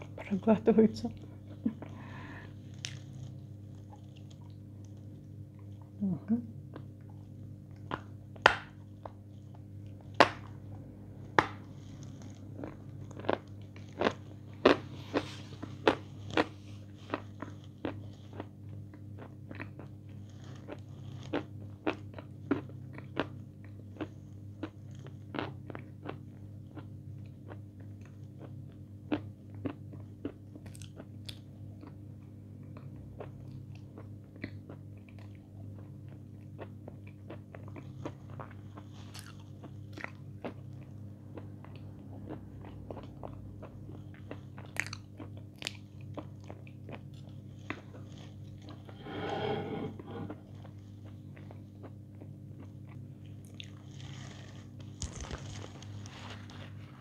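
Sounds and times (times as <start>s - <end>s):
crunching and chewing: 1.2s - 6.0s, 6.7s - 49.0s, 50.2s - 57.0s
low hum: 48.7s - 50.7s.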